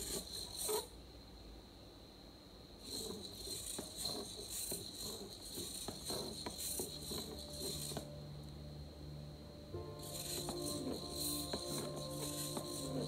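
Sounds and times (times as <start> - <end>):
servos buzzing: 0.0 - 1.0, 2.8 - 8.2, 9.7 - 13.0.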